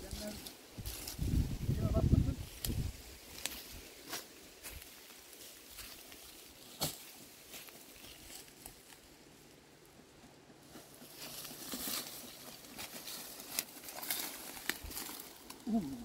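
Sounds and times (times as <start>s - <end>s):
faint rustling and crackling: 2.3s - 16.0s.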